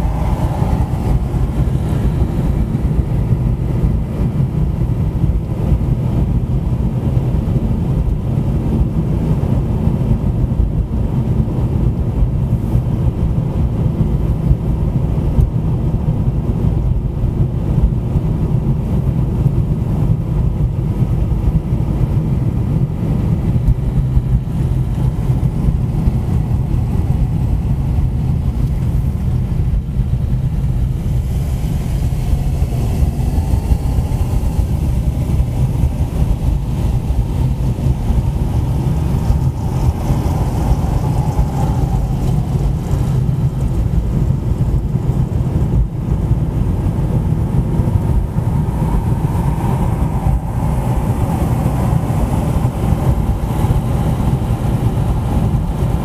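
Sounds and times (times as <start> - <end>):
higher hum: 0.0 - 5.3
car engine rumble: 0.0 - 56.0
road noise: 0.0 - 56.0.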